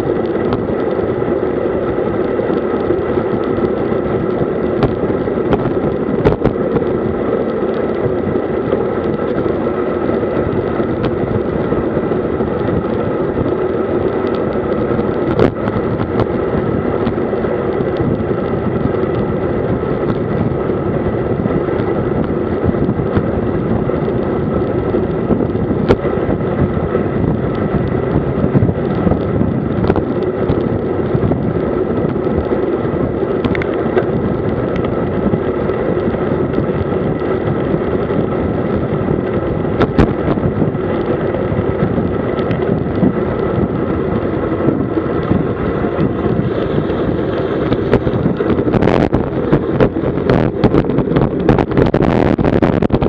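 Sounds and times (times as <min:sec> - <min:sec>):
bike tyre hum: 0:00.0 - 0:53.0
wind on microphone: 0:00.0 - 0:53.0.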